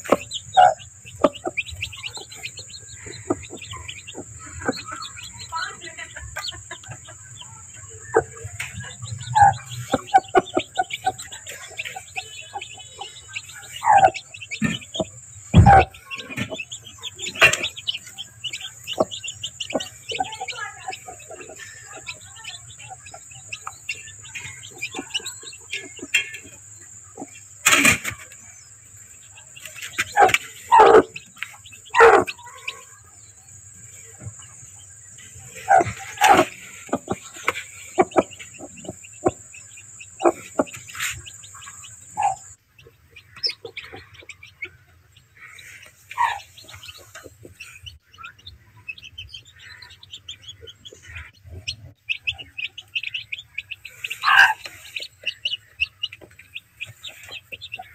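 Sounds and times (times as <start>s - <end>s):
chicks peeping: 0.0s - 57.9s
hen calling: 52.2s - 57.9s.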